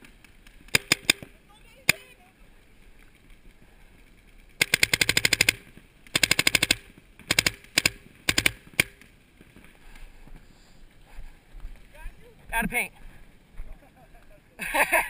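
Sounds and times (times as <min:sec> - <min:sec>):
paintball marker firing: 0:00.7 - 0:01.3, 0:04.6 - 0:09.1.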